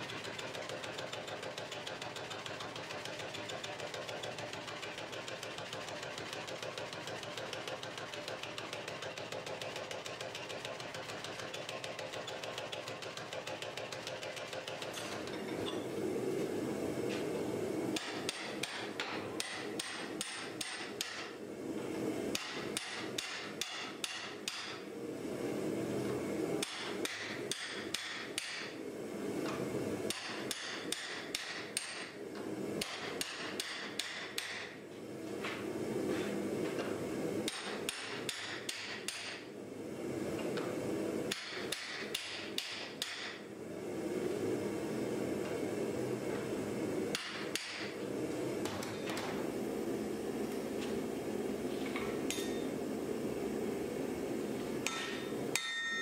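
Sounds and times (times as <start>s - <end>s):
hammer striking steel: 18.0s - 21.3s, 22.3s - 24.8s, 26.6s - 28.7s, 30.1s - 32.1s, 32.8s - 34.8s, 37.5s - 39.4s, 41.3s - 43.4s, 47.1s - 47.9s, 54.8s - 56.0s.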